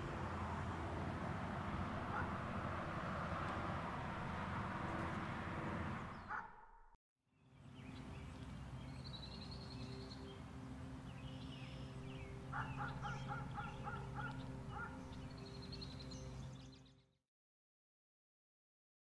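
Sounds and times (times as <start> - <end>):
birds chirping: 6.1 - 6.5, 7.4 - 17.1.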